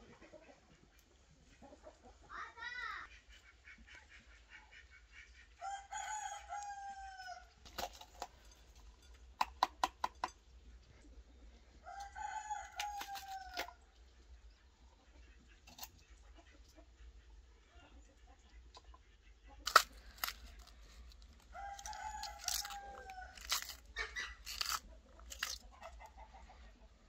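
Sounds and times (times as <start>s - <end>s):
rooster crowing: 5.6s - 7.5s, 11.8s - 13.8s, 21.5s - 23.7s.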